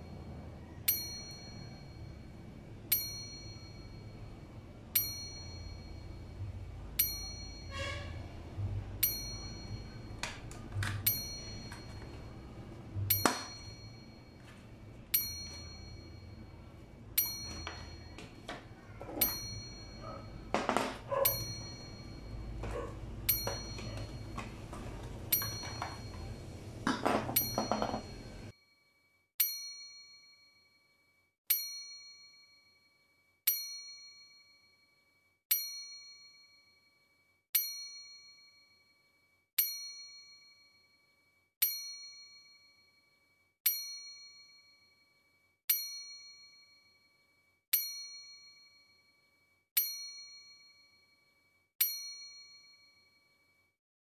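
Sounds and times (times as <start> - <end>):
bell-like ding: 0.0 - 8.2, 9.0 - 28.6, 43.7 - 53.6
handling noise and knocks: 10.1 - 16.0, 17.2 - 28.5.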